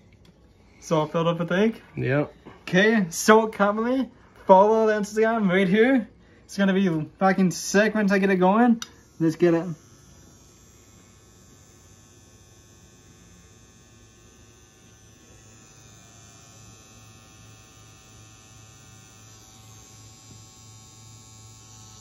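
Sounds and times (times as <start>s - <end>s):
tattoo pen motor hum: 6.8s - 22.0s.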